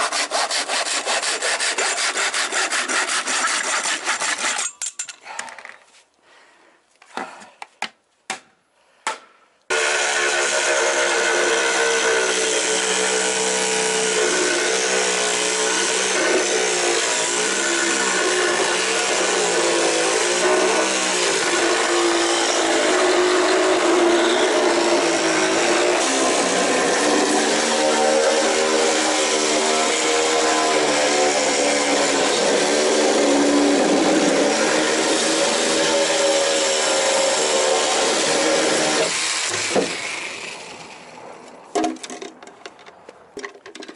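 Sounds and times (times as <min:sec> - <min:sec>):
saw blade cutting float: 0:00.0 - 0:04.8, 0:09.7 - 0:41.1
electric saw motor whining: 0:09.7 - 0:41.1.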